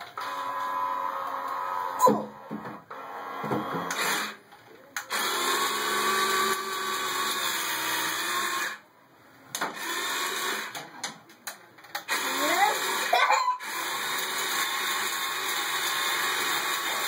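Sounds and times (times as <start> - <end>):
toy vehicle motors whirring: 2.9 - 4.4, 5.0 - 8.8, 9.6 - 10.9, 11.8 - 17.0.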